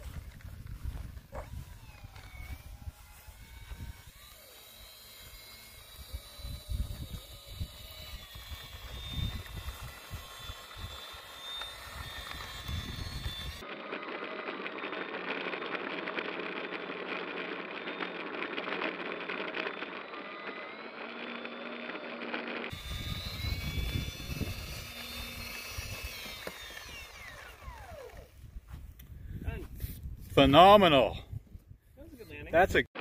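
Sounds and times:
wind on microphone: 0:00.0 - 0:04.2, 0:05.9 - 0:11.0, 0:12.6 - 0:13.6, 0:22.7 - 0:26.2, 0:27.2 - 0:30.4, 0:31.1 - 0:32.0
electric ducted fans whining: 0:00.0 - 0:28.7.

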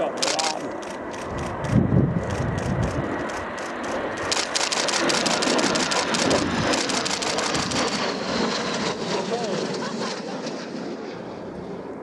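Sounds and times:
jet flying past: 0:00.0 - 0:12.0
fast run of clicks: 0:00.2 - 0:08.0.

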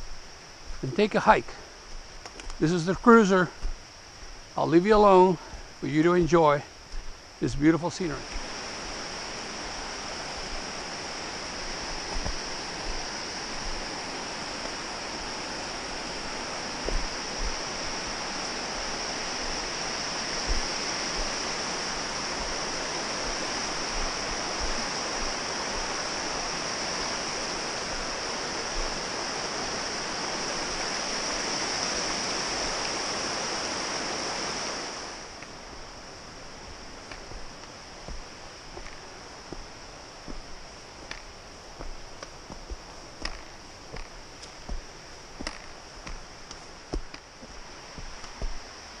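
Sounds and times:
water rushing over rocks: 0:04.6 - 0:49.0
soft low thumps: 0:11.6 - 0:14.0, 0:14.6 - 0:26.5, 0:27.8 - 0:29.0, 0:36.6 - 0:49.0.

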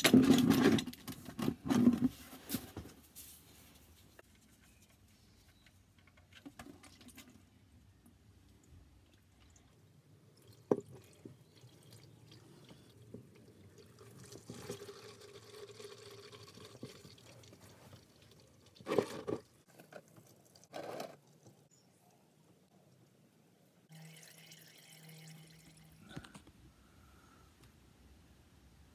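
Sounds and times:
oil pouring into metal container: 0:13.6 - 0:19.5, 0:23.9 - 0:26.2.

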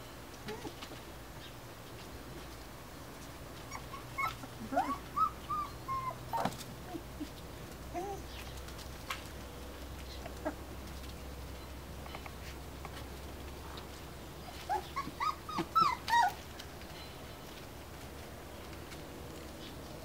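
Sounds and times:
dog whining: 0:00.4 - 0:00.8, 0:03.7 - 0:07.3, 0:07.9 - 0:08.3, 0:14.5 - 0:16.5.

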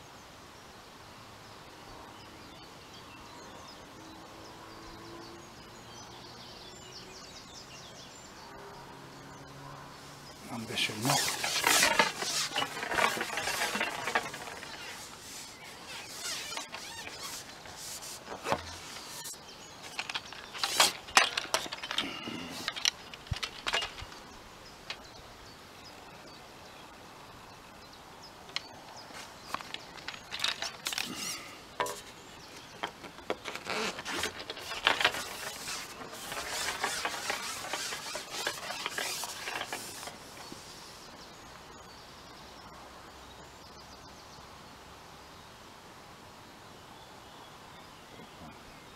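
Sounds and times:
birds singing: 0:02.1 - 0:45.6
fishing tackle clicks and knocks: 0:18.3 - 0:24.2, 0:29.5 - 0:40.2.

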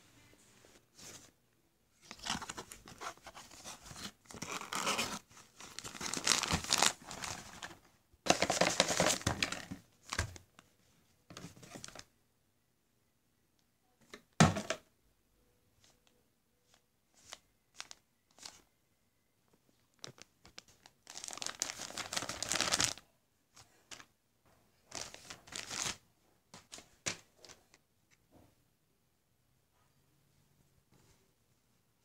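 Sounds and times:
plastic packaging crinkling and tearing: 0:02.0 - 0:09.6, 0:19.9 - 0:23.0, 0:24.9 - 0:26.0.

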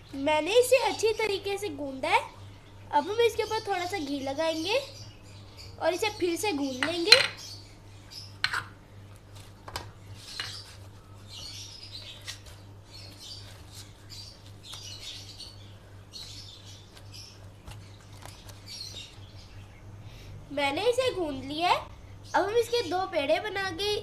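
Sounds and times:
hands kneading dough: 0:09.1 - 0:15.2, 0:16.1 - 0:19.1.

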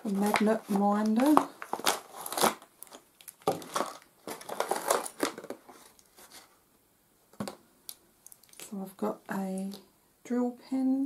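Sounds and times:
packaging crinkling and rustling: 0:00.0 - 0:06.5, 0:08.2 - 0:08.8.

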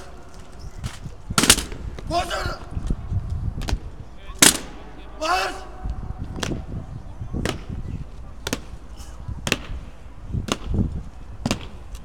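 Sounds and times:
boots stamping on stone floor: 0:07.4 - 0:12.0.

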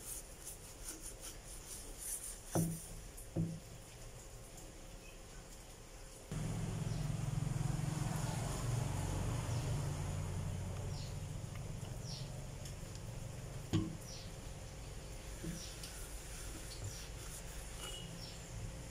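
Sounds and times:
low steady hum: 0:06.2 - 0:18.9.

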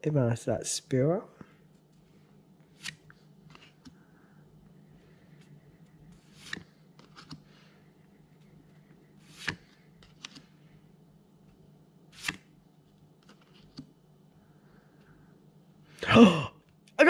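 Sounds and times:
cards swishing: 0:02.7 - 0:03.9, 0:06.2 - 0:07.6, 0:09.2 - 0:10.5, 0:12.1 - 0:12.5
cards clicking together: 0:09.3 - 0:10.5, 0:12.2 - 0:12.4.

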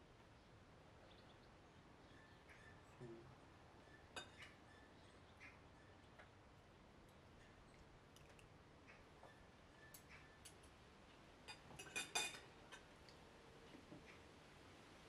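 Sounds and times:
cutlery clinking on plates: 0:11.5 - 0:12.8.

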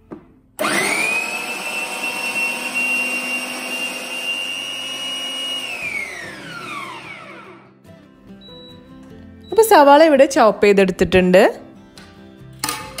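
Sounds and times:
mixer motor whine: 0:00.6 - 0:07.8.

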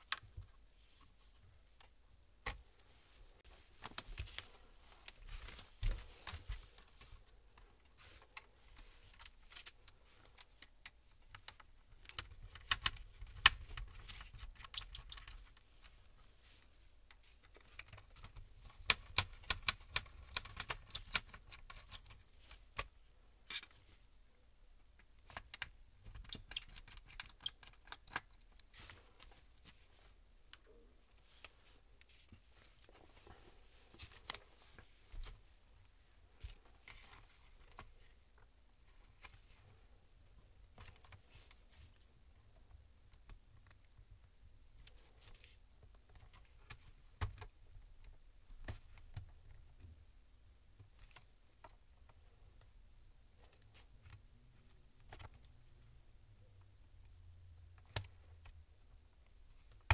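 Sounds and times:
small parts clicking and rattling: 0:01.7 - 0:24.0.

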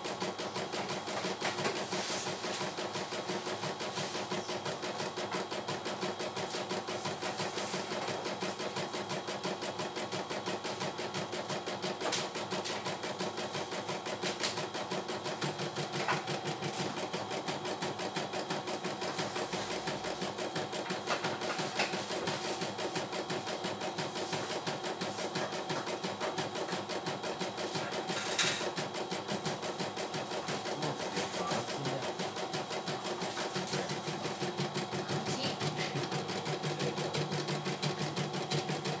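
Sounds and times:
embroidery machine needle chatter: 0:25.5 - 0:39.0.

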